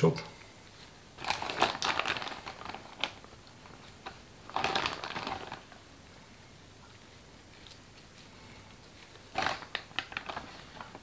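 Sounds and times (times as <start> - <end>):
plastic bag rustling and squelching: 0.8 - 5.9, 7.5 - 11.0.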